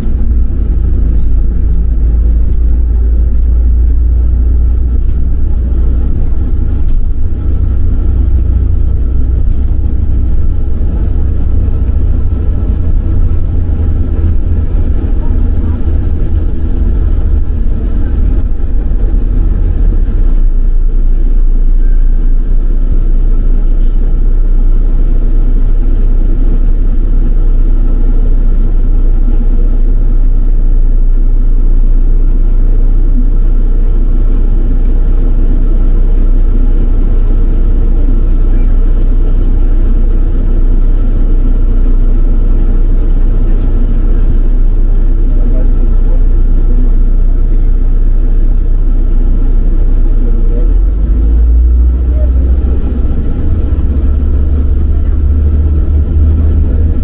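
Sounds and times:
bus engine and tyres rumbling: 0:00.0 - 0:57.0.

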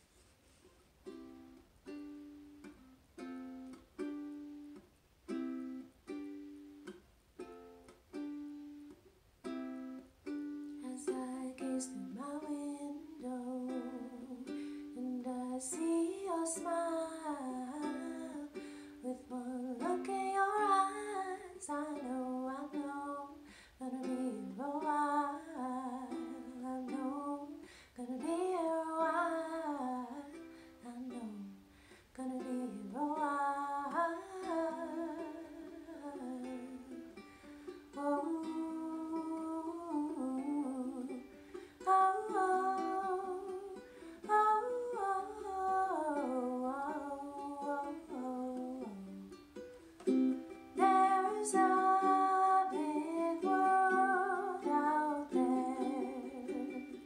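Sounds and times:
ukulele strumming chords: 0:01.0 - 0:57.0
woman singing: 0:10.7 - 0:37.2, 0:37.9 - 0:49.4, 0:50.1 - 0:57.0.

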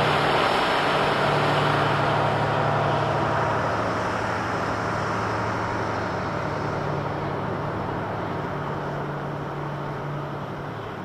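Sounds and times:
locomotive engine drone: 0:00.0 - 0:11.0.

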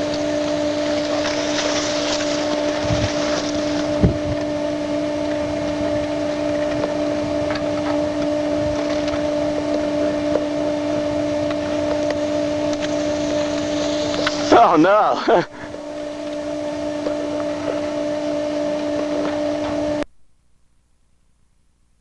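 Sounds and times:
steady low hum: 0:00.0 - 0:22.0
wind hiss on microphone: 0:01.3 - 0:04.5.

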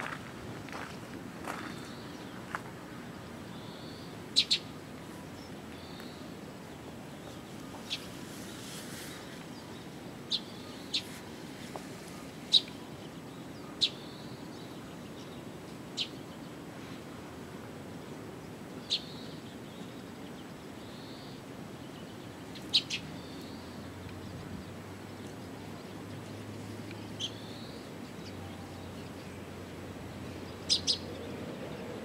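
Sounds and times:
outdoor background noise: 0:00.0 - 0:32.0
small bird chirping: 0:03.6 - 0:04.7, 0:30.5 - 0:31.4.

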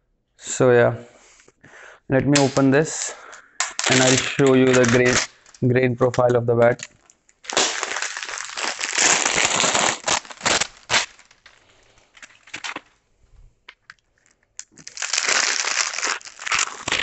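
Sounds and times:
plastic wrapping crinkling: 0:02.4 - 0:13.0, 0:13.6 - 0:17.0.

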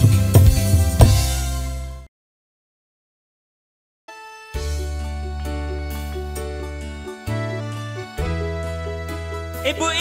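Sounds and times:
deep bass note: 0:00.0 - 0:02.1
keyboard melody: 0:00.0 - 0:02.1, 0:04.1 - 0:10.0.

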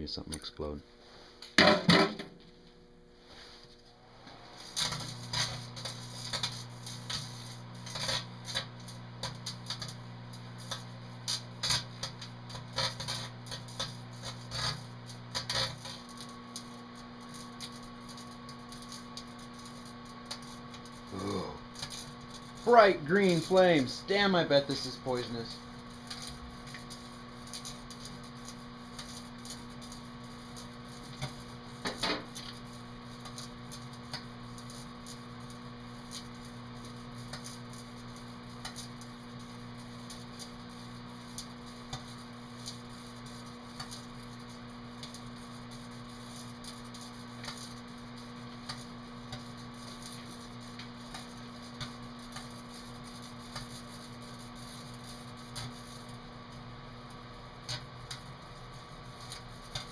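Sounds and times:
microwave oven humming: 0:00.0 - 0:59.9
crackles and pops: 0:04.2 - 0:59.9.

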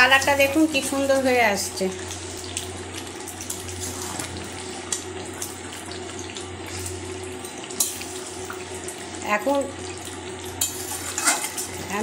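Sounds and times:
meat sizzling in a metal pan: 0:00.0 - 0:12.0
spatula scraping and tapping: 0:10.6 - 0:11.8.

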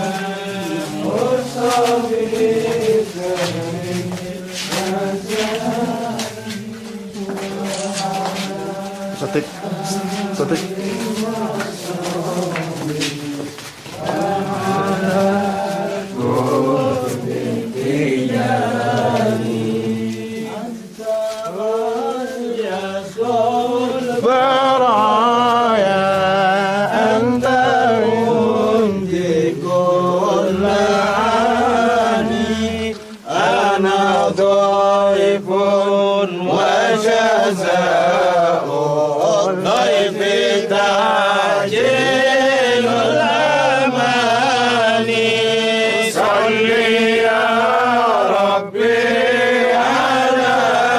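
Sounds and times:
men chanting together: 0:00.0 - 0:50.9.

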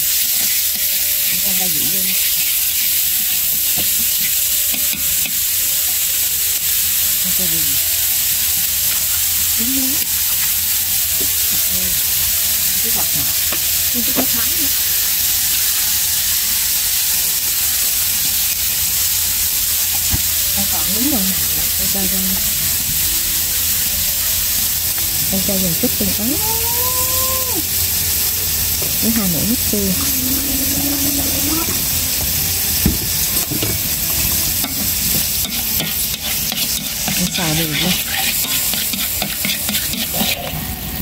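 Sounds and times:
meat sizzling in a wok: 0:00.0 - 0:41.0
chopsticks stirring: 0:28.8 - 0:40.6.

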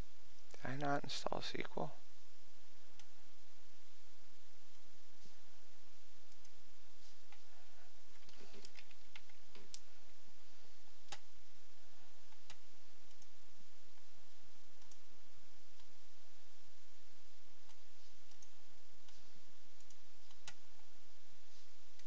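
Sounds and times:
low background hum: 0:00.0 - 0:22.0
computer mouse clicks: 0:06.3 - 0:06.6, 0:08.1 - 0:09.9, 0:11.0 - 0:11.3, 0:12.3 - 0:13.4, 0:14.8 - 0:15.1, 0:17.6 - 0:20.8.

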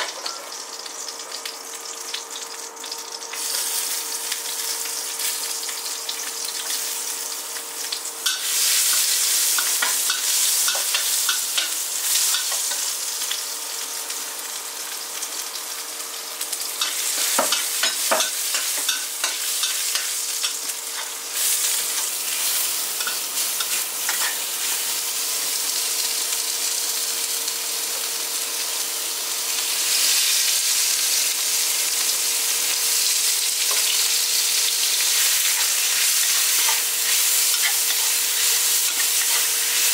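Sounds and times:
oil sizzling: 0:00.0 - 0:39.9
spatula clicking and scraping: 0:16.8 - 0:24.8.

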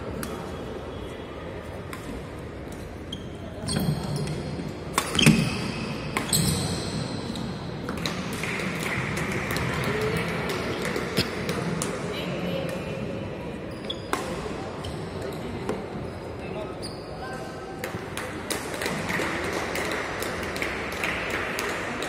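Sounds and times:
rackets striking a shuttlecock: 0:04.2 - 0:06.7.

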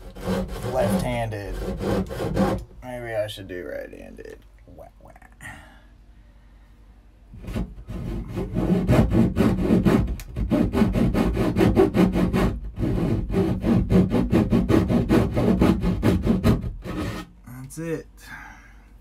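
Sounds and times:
hand saw cutting wood: 0:00.0 - 0:02.7, 0:07.4 - 0:17.3.

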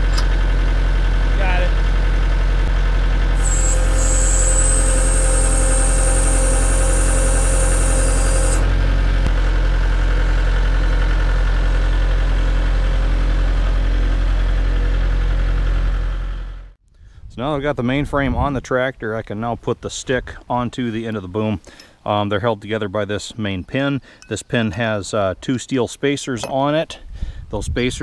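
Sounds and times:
tractor diesel engine running: 0:00.0 - 0:16.7
high-pitched whine: 0:03.4 - 0:08.8.

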